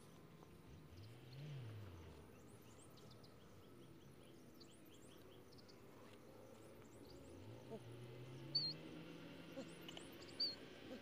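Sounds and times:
small birds chirping: 2.2s - 11.0s.

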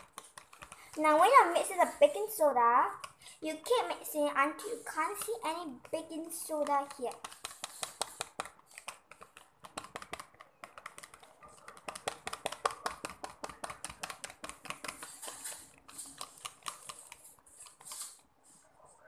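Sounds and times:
whisk clicking against plastic bowl: 0.0s - 1.4s, 4.9s - 17.9s.

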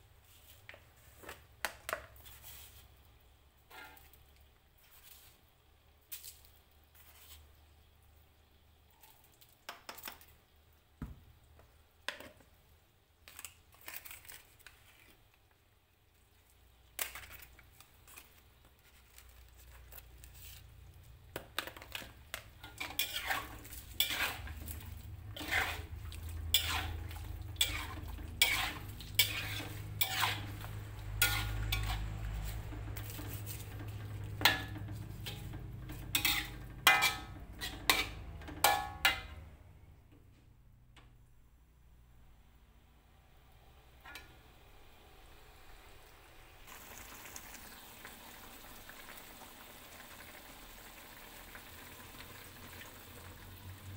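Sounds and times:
metal spatula scraping a wok: 3.7s - 4.2s, 21.6s - 39.6s.

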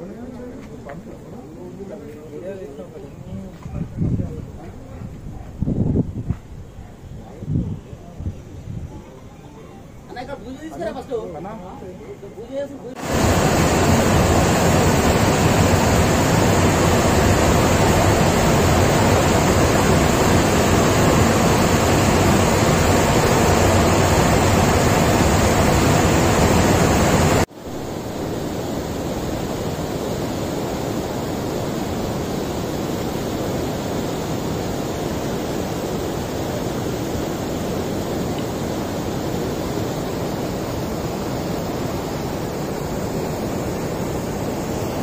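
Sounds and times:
water rushing through sluice gate: 12.9s - 45.0s
churning water outflow: 13.0s - 45.0s.

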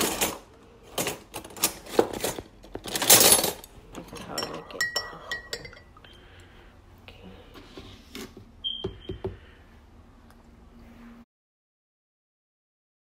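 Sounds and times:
metal utensils clattering in drawer: 0.0s - 4.9s
spoon clinking in ceramic mug: 4.2s - 6.0s.

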